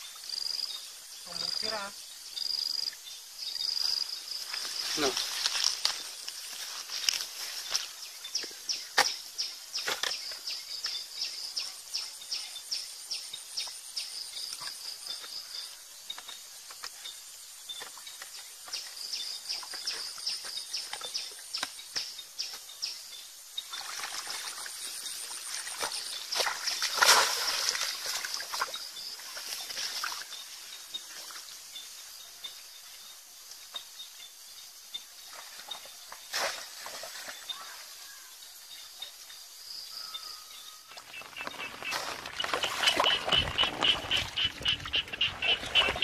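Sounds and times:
river water sloshing and splashing: 23.6s - 31.6s, 35.2s - 37.6s, 40.9s - 46.0s.

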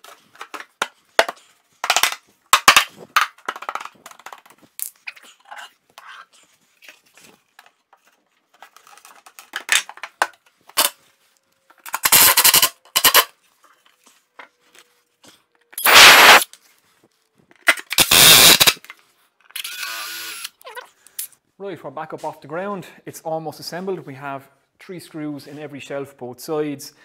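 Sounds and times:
drill driving screws into wood: 15.8s - 16.4s, 17.9s - 18.8s, 19.6s - 20.6s.

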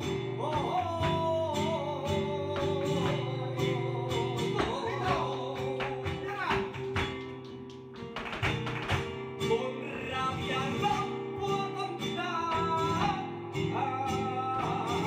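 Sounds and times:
flamenco guitar playing: 0.0s - 15.0s
person singing: 0.4s - 6.8s, 9.4s - 15.0s.

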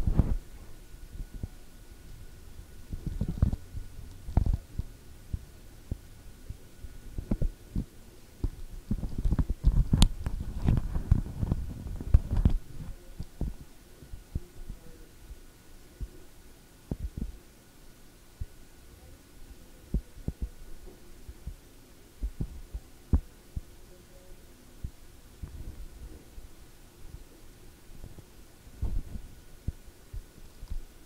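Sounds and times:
microphone handling thumps: 7.2s - 13.6s, 25.4s - 26.3s, 28.8s - 30.9s
faint steady high tone: 22.4s - 25.1s.

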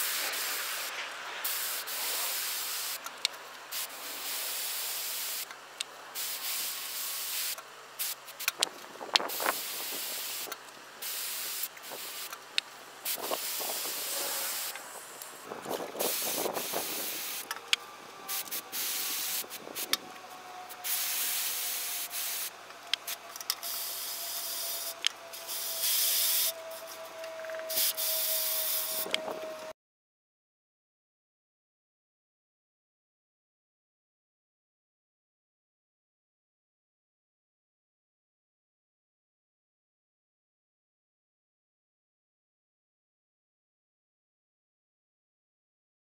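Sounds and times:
hose spray nozzle hissing: 0.0s - 3.1s, 3.7s - 5.5s, 6.2s - 12.4s, 13.0s - 29.2s.

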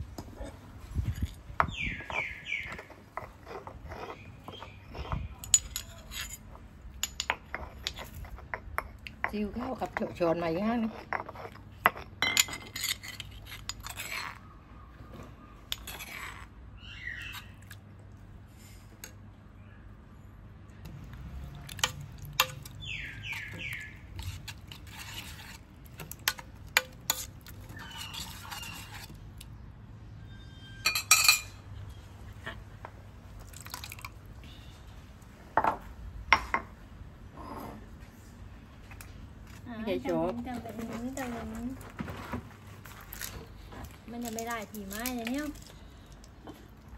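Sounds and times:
metal spoon scraping a pot: 1.1s - 14.5s, 15.7s - 16.5s, 21.6s - 29.2s.

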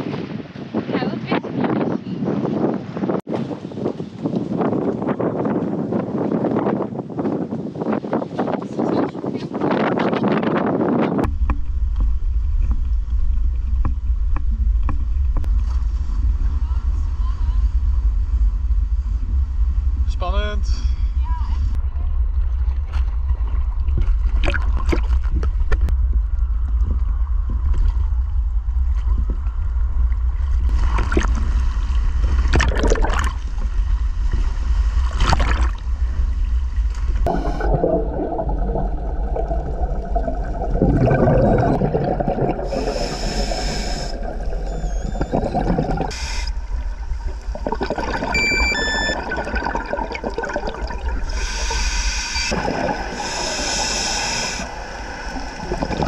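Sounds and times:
low underwater rumble: 11.0s - 56.0s
regulator bubbling: 32.5s - 33.5s, 37.2s - 56.0s.

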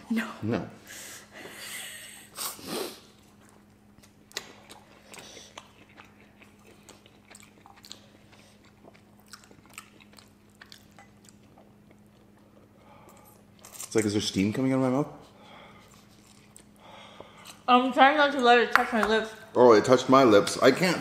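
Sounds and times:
faint steady hum: 0.0s - 21.0s
wet chewing and slurping: 3.3s - 13.9s.

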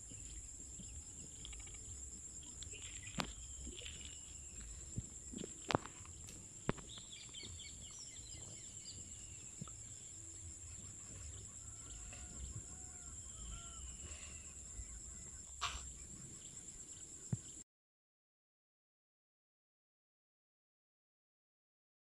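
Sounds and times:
fowl-like bird calls: 11.2s - 14.8s.

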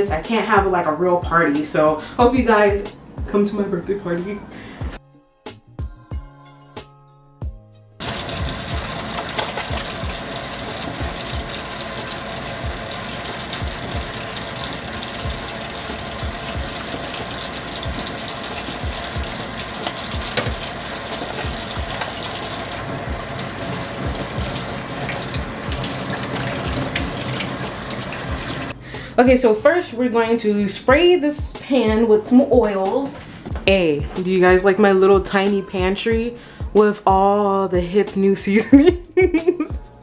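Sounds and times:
faucet running into sink: 8.0s - 28.8s.

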